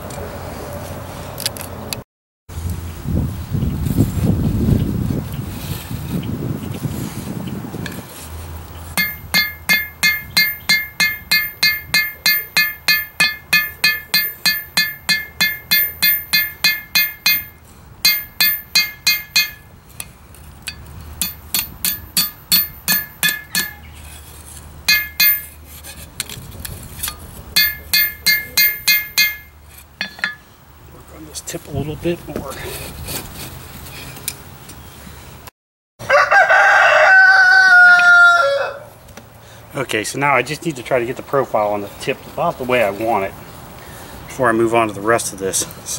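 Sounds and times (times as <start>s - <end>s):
hammer striking steel on anvil: 9.0s - 23.9s, 24.9s - 25.6s, 27.1s - 30.5s.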